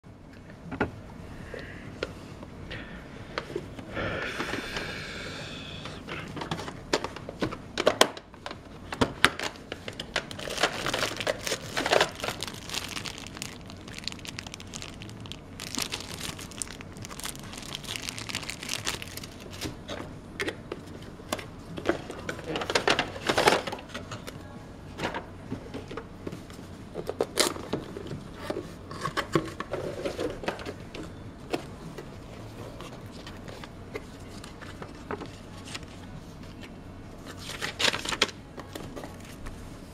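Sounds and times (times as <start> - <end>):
cardboard and paper rustling: 9.2 - 20.0.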